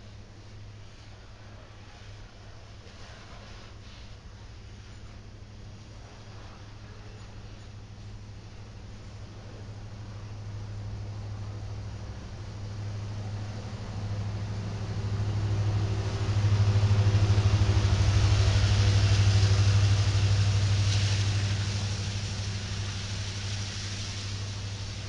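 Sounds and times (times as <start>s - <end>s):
diesel locomotive engine drone: 0.0s - 25.0s
steel wheels rolling on rails: 9.5s - 25.0s.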